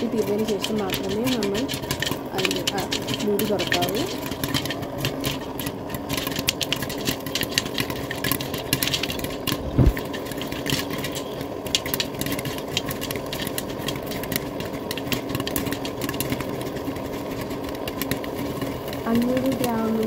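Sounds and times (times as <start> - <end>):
popcorn popping in hot oil: 0.0 - 20.0
low thud: 9.6 - 10.0.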